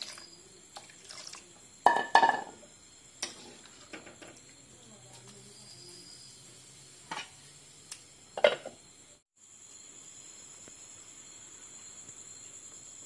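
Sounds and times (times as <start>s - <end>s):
oil frying: 0.0s - 4.7s.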